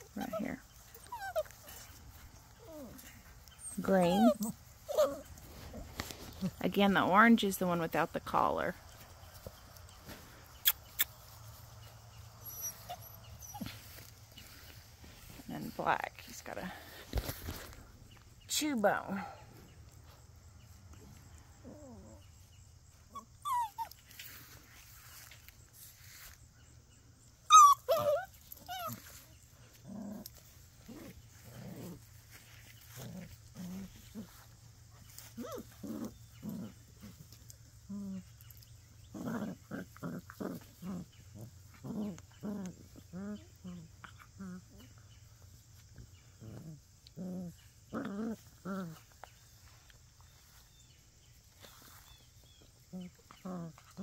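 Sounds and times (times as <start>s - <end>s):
puppies play growling: 0.0s - 18.5s, 19.4s - 54.0s
puppy yelping: 3.6s - 5.3s, 12.4s - 13.7s, 23.1s - 24.0s, 27.5s - 29.0s.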